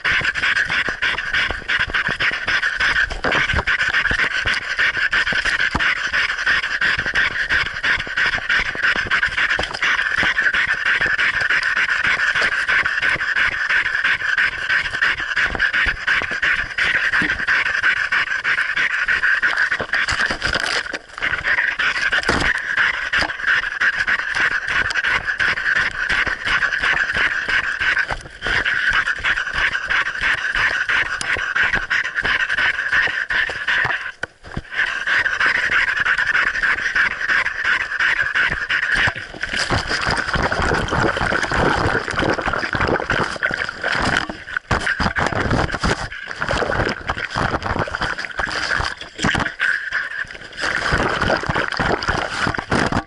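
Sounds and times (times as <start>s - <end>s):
dog panting: 0.0s - 49.5s.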